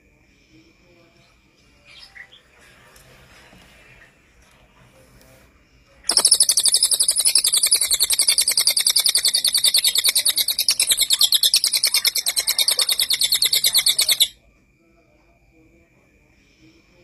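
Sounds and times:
songbird rapid rattling song: 6.1s - 14.4s.

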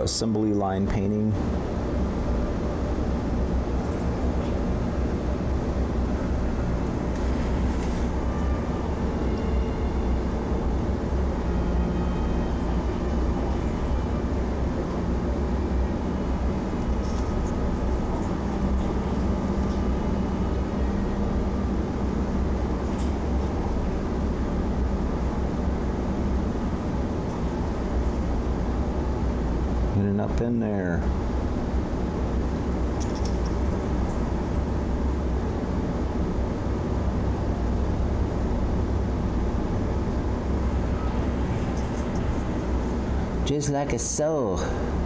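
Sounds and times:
low room hum: 0.0s - 45.0s.

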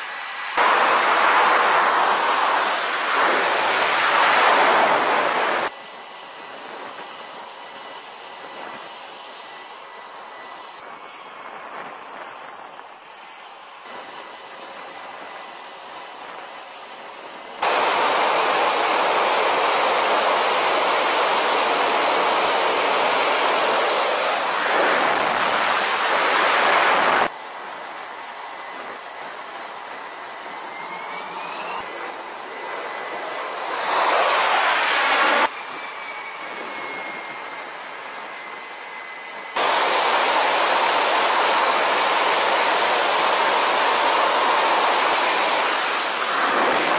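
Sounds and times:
engine spooling up: 0.0s - 5.8s, 17.4s - 46.9s
jet engine at full power: 0.0s - 46.9s
jet engine whine: 0.0s - 46.9s.

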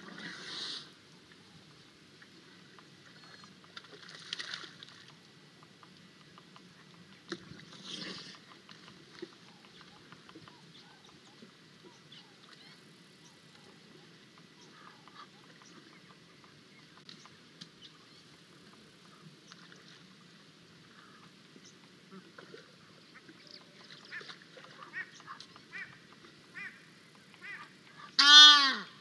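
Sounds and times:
faint bird calls: 2.6s - 4.0s, 5.0s - 20.0s, 20.8s - 29.0s
mud sloshing and splashing: 3.8s - 5.1s.

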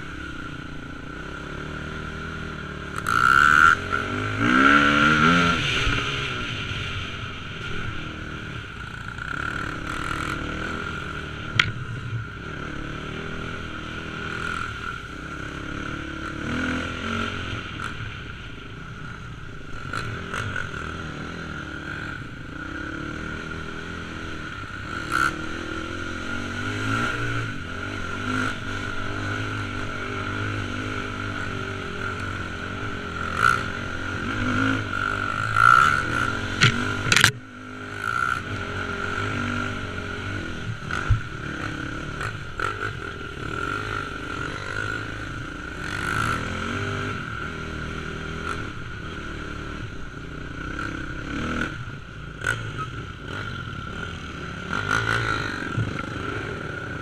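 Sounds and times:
dirt bike engine running: 0.0s - 18.6s, 19.2s - 57.0s.

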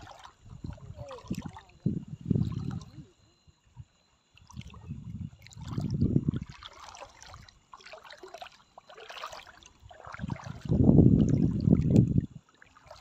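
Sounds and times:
seawater splashing and sloshing: 0.0s - 3.1s, 4.3s - 13.0s
water trickling: 0.0s - 13.0s.

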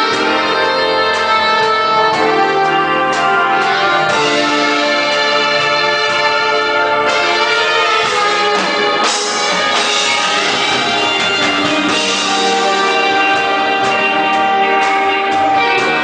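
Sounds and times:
big band playing a ballad: 0.0s - 16.0s
saxophone solo: 0.0s - 16.0s.

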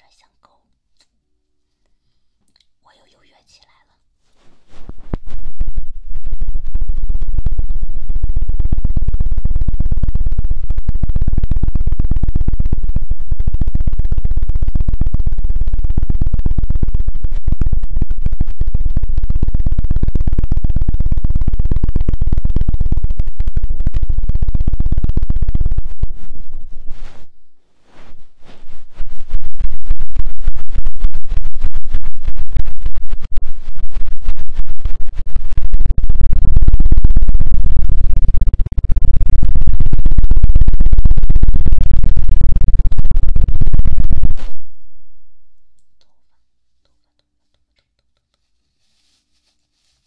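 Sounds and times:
scratching and rubbing on microphone: 3.0s - 44.6s, 46.0s - 50.0s.

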